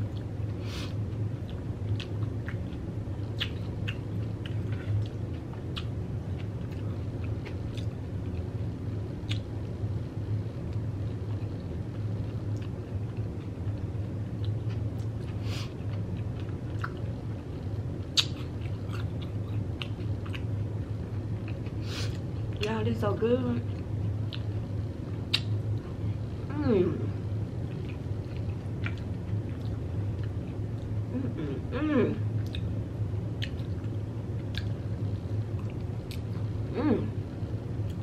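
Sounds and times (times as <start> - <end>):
steady low hum: 0.0 - 38.0
chewing crunchy food: 1.1 - 8.5, 12.3 - 22.7, 27.6 - 31.0, 33.4 - 34.8.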